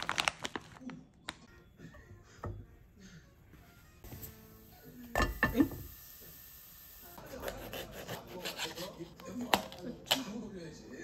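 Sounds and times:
knife and fork scraping plate: 0:07.4 - 0:09.6.

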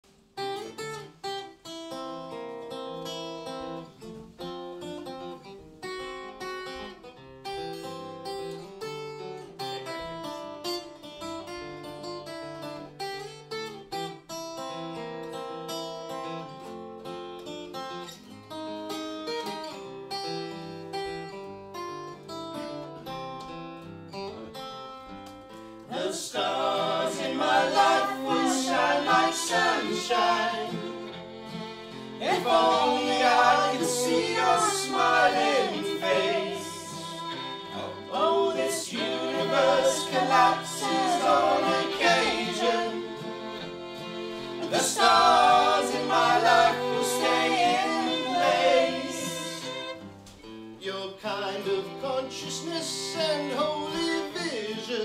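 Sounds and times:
acoustic guitar picking: 0:00.4 - 0:55.0
fiddle: 0:24.4 - 0:55.0
voices singing in harmony: 0:25.9 - 0:50.1.

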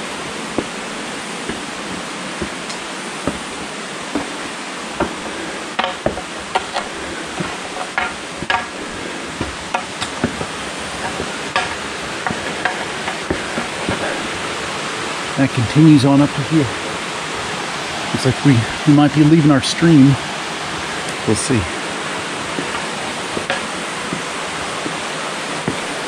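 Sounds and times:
footsteps on stone steps: 0:00.0 - 0:15.2, 0:20.6 - 0:26.0
mountain stream rushing: 0:00.0 - 0:26.0.

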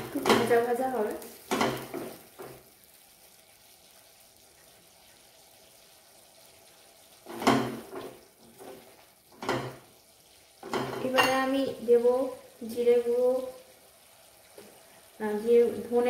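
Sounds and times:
paste frying in a pan: 0:00.0 - 0:16.0.

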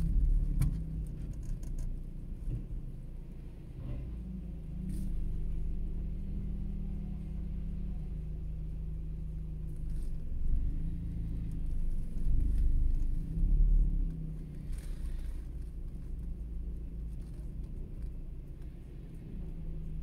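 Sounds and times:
diesel truck engine rumbling: 0:00.0 - 0:20.0.

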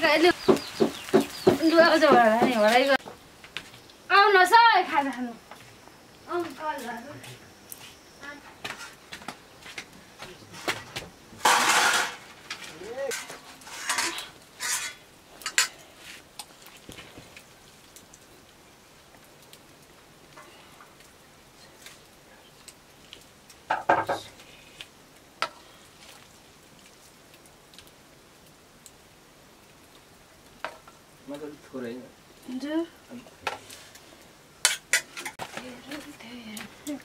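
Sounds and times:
faint hiss of frying: 0:00.0 - 0:37.0
utensil scraping a pot: 0:11.5 - 0:16.2.

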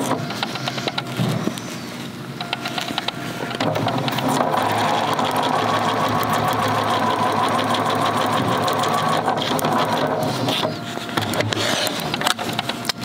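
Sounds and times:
electric sewing machine running: 0:03.6 - 0:12.2.

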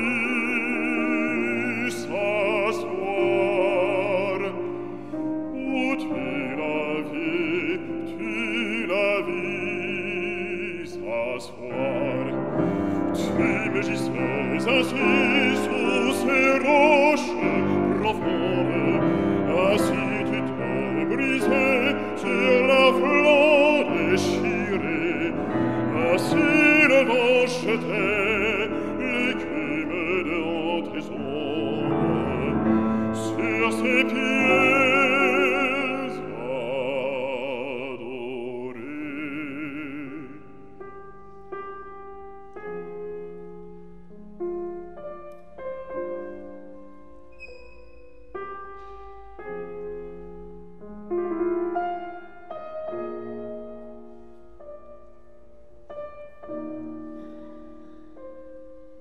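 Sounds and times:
man singing with vibrato: 0:00.0 - 0:40.8
grand piano: 0:00.0 - 0:59.0.

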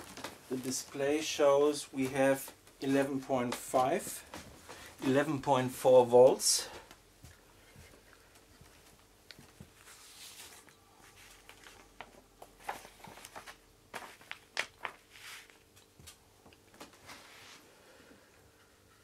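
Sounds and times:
faint steady hum: 0:00.0 - 0:19.0
paper pages rustling: 0:08.3 - 0:16.2.

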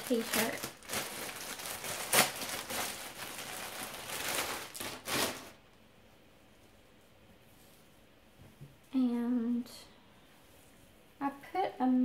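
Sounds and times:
packaging crinkling and rustling: 0:00.0 - 0:05.6.

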